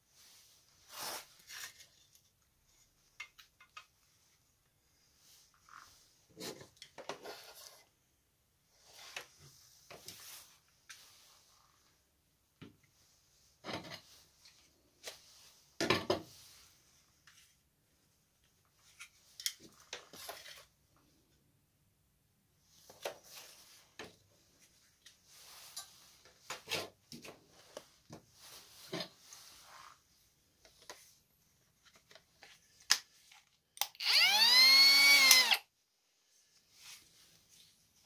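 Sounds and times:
soft rustling: 0:36.1 - 0:38.0.

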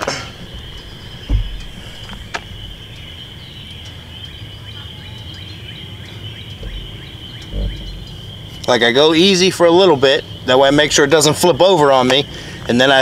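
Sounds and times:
microphone handling bumps: 0:00.0 - 0:03.9, 0:06.6 - 0:08.7
insects chirping: 0:00.0 - 0:13.0.

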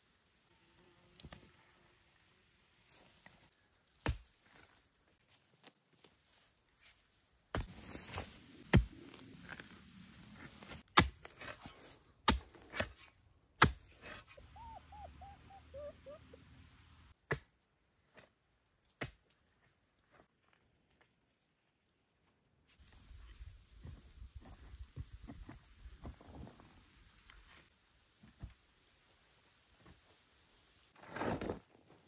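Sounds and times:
hand tool chopping wood: 0:08.7 - 0:09.0, 0:10.9 - 0:14.4.

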